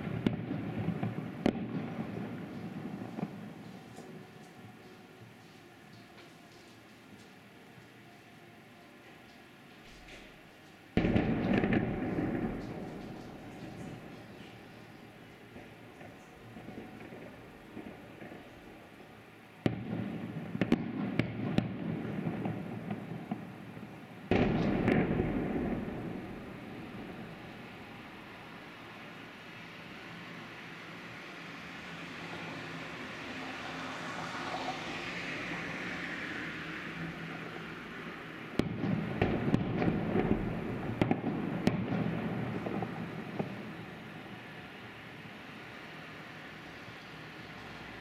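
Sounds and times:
fireworks bursting: 10.9s - 18.8s, 19.6s - 28.0s, 38.5s - 44.6s.

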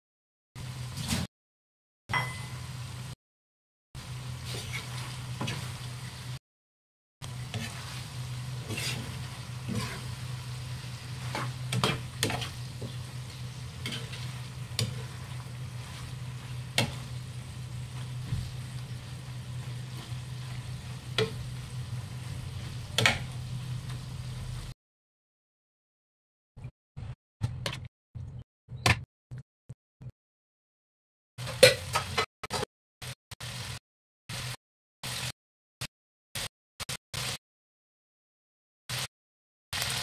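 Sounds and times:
food sizzling in a frying pan: 4.0s - 6.4s, 7.2s - 24.7s, 33.4s - 35.3s, 39.8s - 40.0s.

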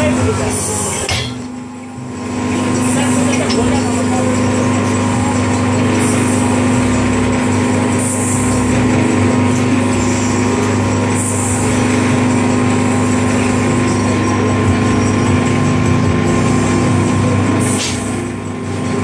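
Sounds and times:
hydraulic motor and pump hum: 0.0s - 19.0s.

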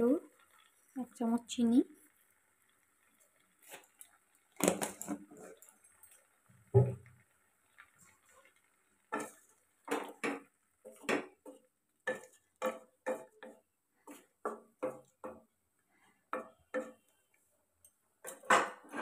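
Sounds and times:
spoon scraping and knocking a pan: 4.6s - 7.2s, 8.4s - 15.5s, 16.1s - 17.3s, 18.2s - 19.0s.

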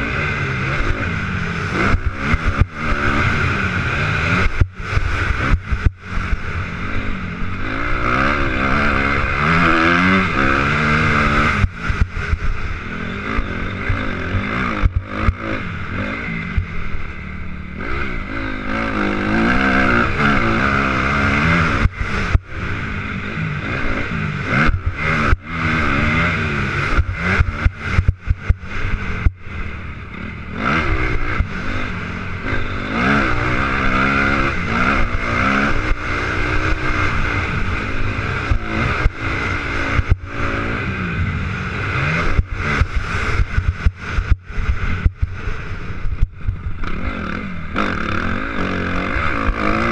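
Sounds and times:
motocross bike engine revving: 0.0s - 49.9s
wind noise: 30.5s - 49.9s.

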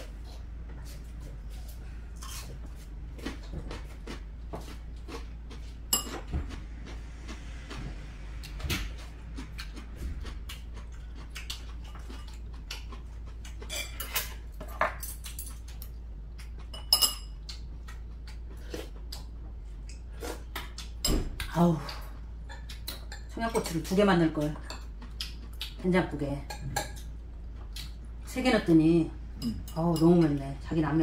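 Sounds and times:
utensils clinking on ceramic bowls: 5.9s - 6.3s, 16.7s - 17.4s.

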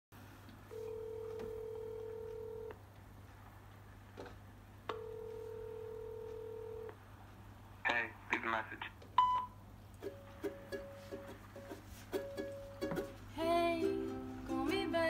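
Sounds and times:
faint low hum: 0.2s - 15.0s
phone ringing tone beeps: 0.7s - 2.7s, 4.9s - 7.0s, 9.2s - 9.6s.

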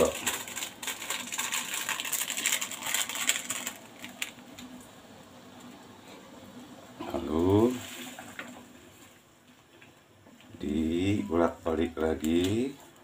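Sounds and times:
plastic sachet crinkling: 0.0s - 4.9s.

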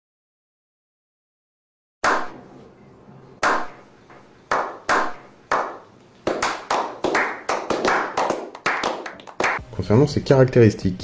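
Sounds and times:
people slow clapping: 4.5s - 9.6s.

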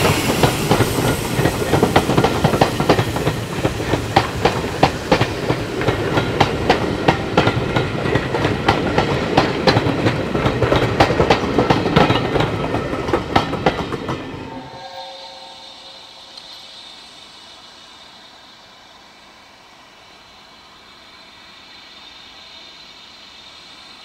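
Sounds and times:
train wheels clicking over rail joints: 0.0s - 14.4s.

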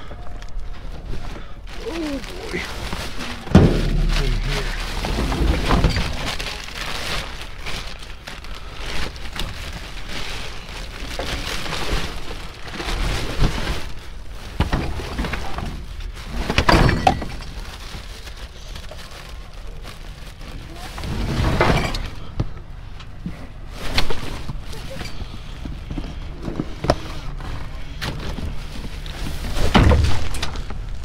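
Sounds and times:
items clattering: 0.0s - 31.0s
plastic bags rustling: 0.0s - 31.0s
cardboard boxes knocking: 3.4s - 4.2s.

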